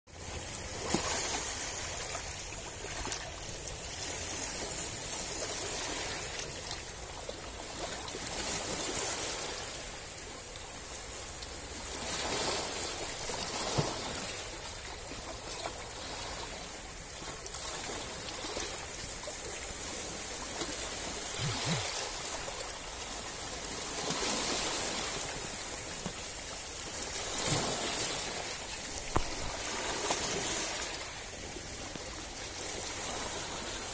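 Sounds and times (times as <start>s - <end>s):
small waves lapping on rocks: 0.2s - 33.9s
small water splashes: 12.0s - 33.9s.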